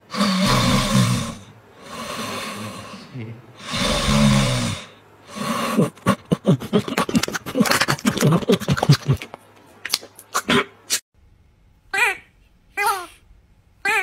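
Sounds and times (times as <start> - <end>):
dog snoring: 0.1 - 5.9.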